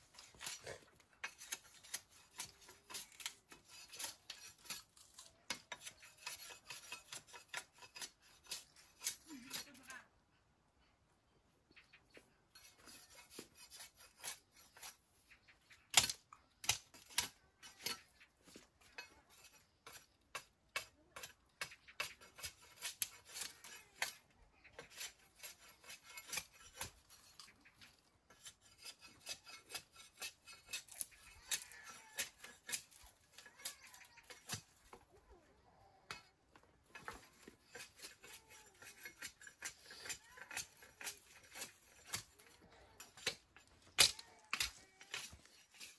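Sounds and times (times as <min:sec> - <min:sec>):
machete hacking bamboo: 0:15.9 - 0:17.3.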